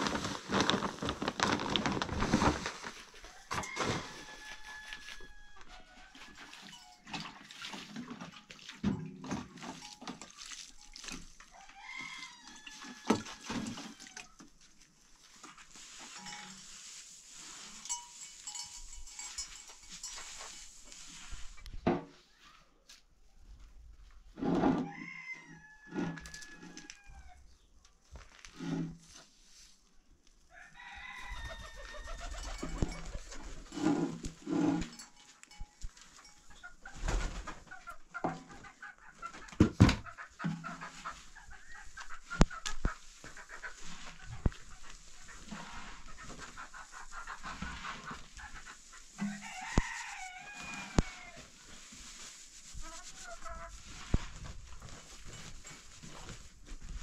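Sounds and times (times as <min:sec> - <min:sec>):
chickens clucking: 0:31.4 - 0:33.7, 0:36.4 - 0:49.3.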